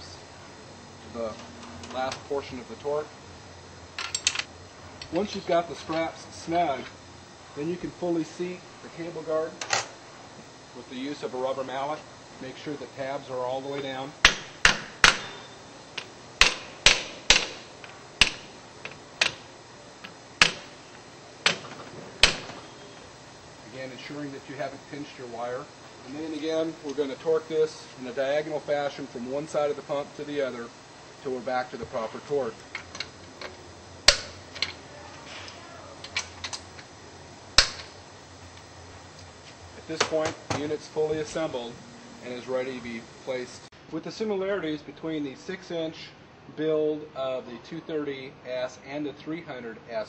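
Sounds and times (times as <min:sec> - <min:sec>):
torque wrench clicking: 0:16.0 - 0:20.8, 0:32.6 - 0:34.8.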